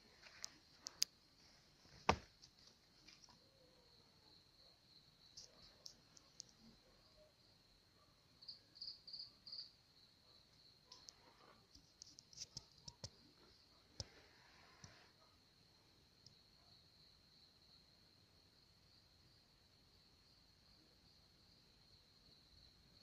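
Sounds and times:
crickets trilling: 8.4s - 14.9s
faint clicks and taps: 10.9s - 14.2s.

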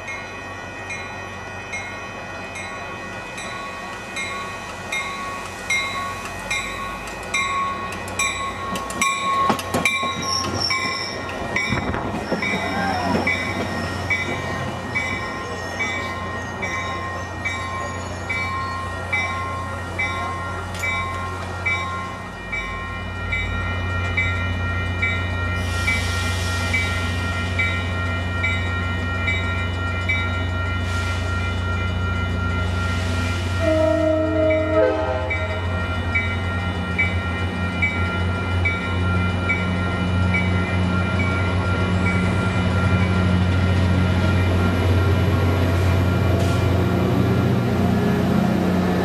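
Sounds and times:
crossing bell dinging: 0.0s - 47.8s
train wheels clicking on rails: 3.4s - 24.4s
brake squeal: 10.1s - 11.3s, 12.2s - 19.0s
hiss of air: 25.6s - 27.1s.

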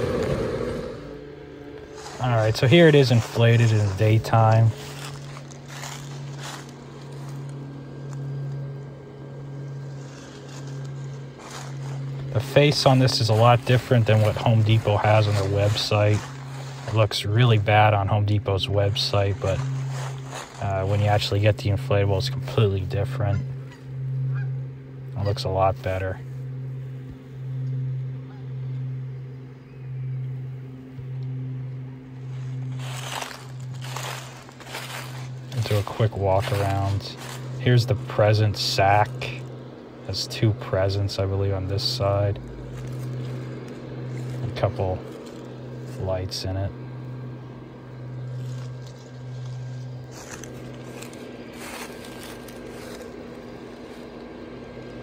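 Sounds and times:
blower fan humming: 0.0s - 55.0s
rustling: 19.4s - 20.8s, 32.2s - 37.6s.

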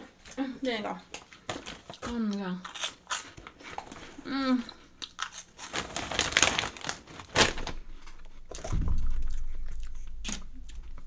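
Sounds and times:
chips crunching: 5.0s - 8.7s
plastic bag crinkling: 5.2s - 9.3s.

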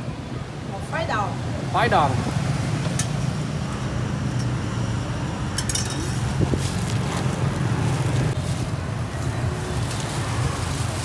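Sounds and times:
street traffic hum: 0.0s - 11.0s.

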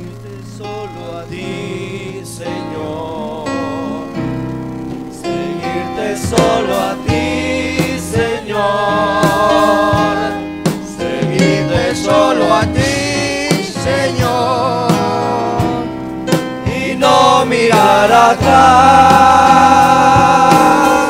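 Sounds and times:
electric bass: 0.0s - 21.0s
electronic keyboard: 0.0s - 21.0s
voices singing: 0.0s - 21.0s
sharp percussive beats: 6.2s - 21.0s.

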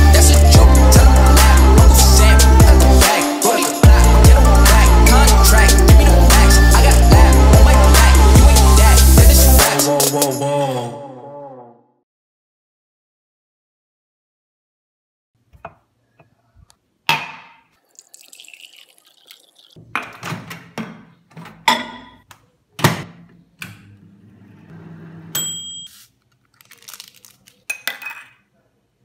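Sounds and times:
microwave ding: 25.4s - 25.9s.

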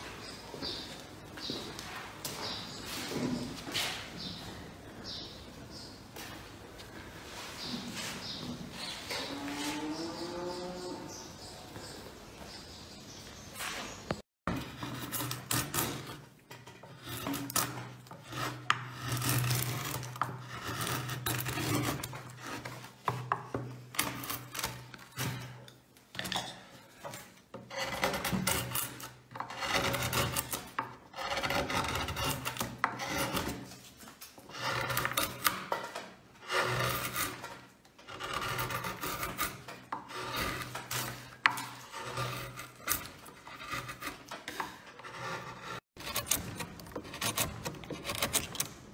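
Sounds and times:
chisel scraping through wood: 13.6s - 48.9s.

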